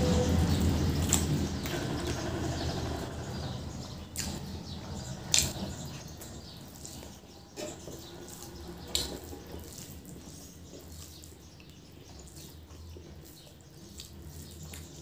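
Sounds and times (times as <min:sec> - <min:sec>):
wet chewing: 0:00.4 - 0:02.2, 0:04.0 - 0:15.0.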